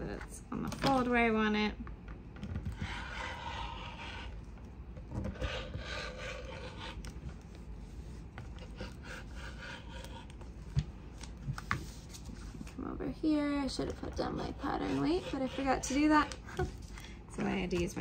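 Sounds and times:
rotary cutter rasping through fabric: 14.3s - 16.4s.

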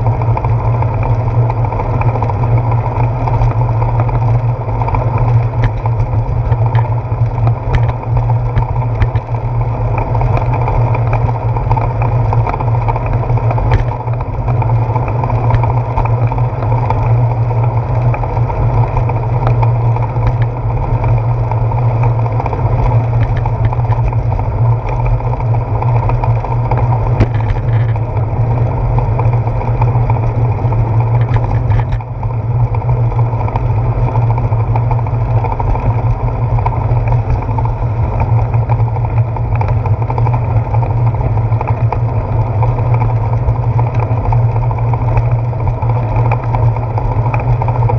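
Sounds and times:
road rumble: 0.0s - 47.9s
handlebar clicks and knocks: 5.4s - 9.4s, 12.4s - 14.3s, 22.4s - 24.2s, 26.8s - 28.2s.

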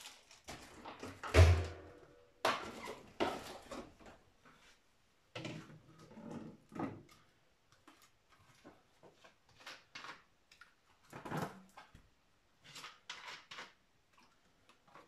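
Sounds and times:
plastic rustling: 0.0s - 1.1s.

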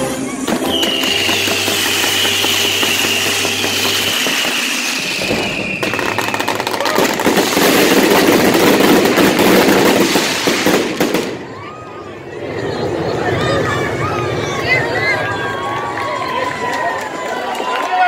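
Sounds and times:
firework whistle falling in pitch: 0.5s - 7.0s
spark fountains hissing: 0.6s - 5.6s
dense crackle of sparks: 0.6s - 11.4s.

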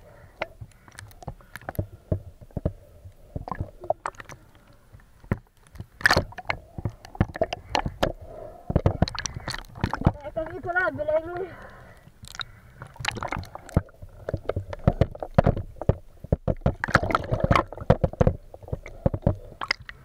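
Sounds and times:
water splashing and sloshing: 0.0s - 20.0s
sharp knocks and clicks: 13.8s - 19.4s.

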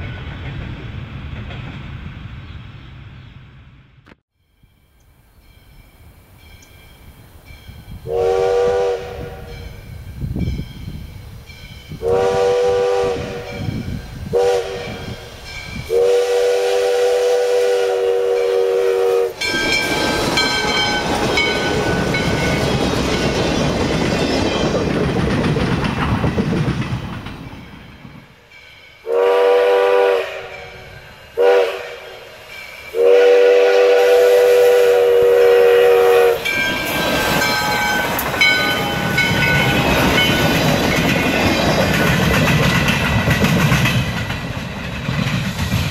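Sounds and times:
train rolling past: 0.0s - 45.9s
steam locomotive whistle: 8.0s - 9.8s, 12.0s - 22.4s, 28.9s - 40.3s.

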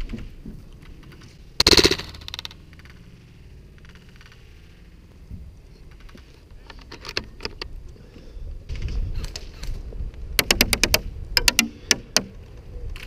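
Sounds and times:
airsoft gun automatic fire: 1.6s - 2.6s.

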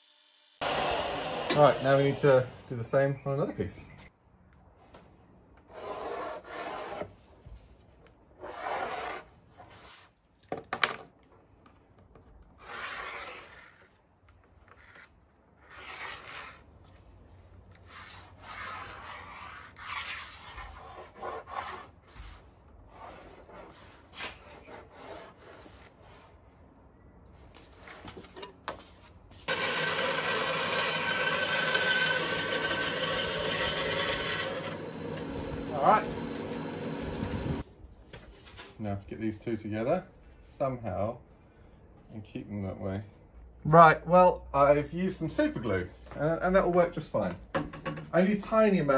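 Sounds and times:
bandsaw cutting plywood: 0.0s - 2.6s, 29.5s - 37.6s.

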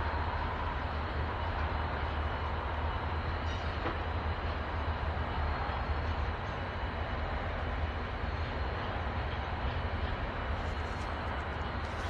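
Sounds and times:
diesel locomotives idling: 0.0s - 12.0s.

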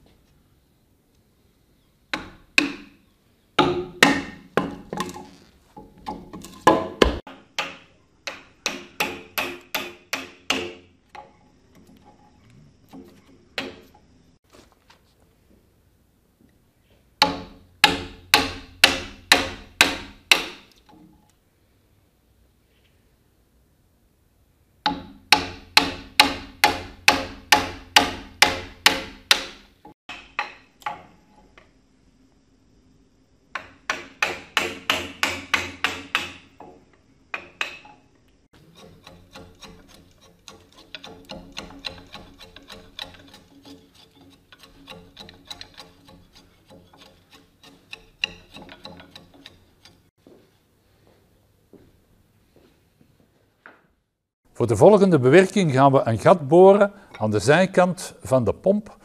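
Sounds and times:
mallet striking chisel into wood: 2.1s - 3.0s, 3.6s - 5.2s, 5.8s - 10.9s, 17.2s - 20.8s, 24.8s - 31.1s, 33.6s - 37.9s, 38.8s - 43.8s, 44.5s - 49.6s
chisel scraping and clicking on wood: 38.6s - 50.1s.

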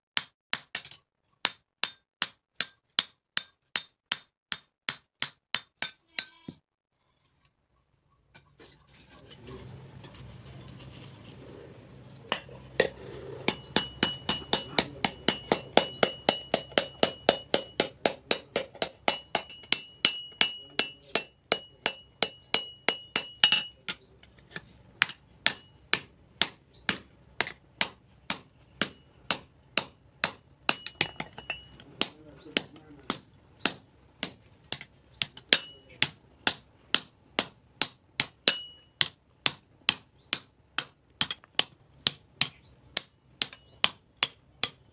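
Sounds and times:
hammer striking steel on anvil: 0.2s - 6.5s, 13.5s - 24.1s, 25.0s - 44.8s.

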